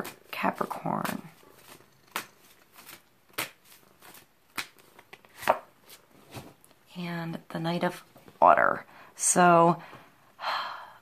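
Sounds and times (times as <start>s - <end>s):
cards being shuffled: 0.0s - 6.5s.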